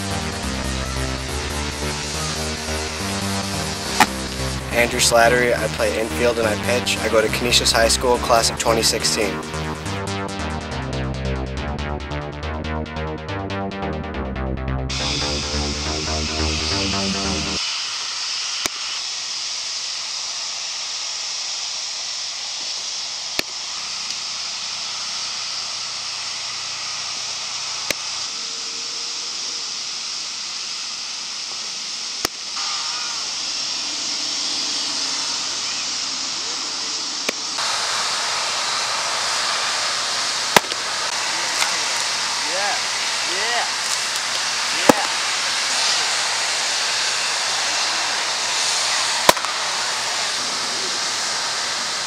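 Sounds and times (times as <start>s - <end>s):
steady outdoor hiss: 0.0s - 11.6s, 14.9s - 52.0s
baseballs smacking into mitt: 40.6s - 40.8s, 49.3s - 49.6s.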